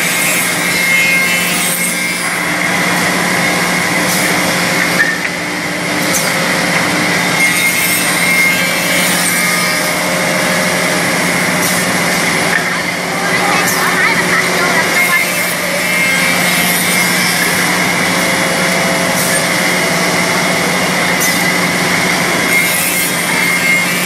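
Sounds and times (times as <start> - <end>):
milling machine whirring cutting: 0.0 - 24.0
motor hum: 8.2 - 24.0.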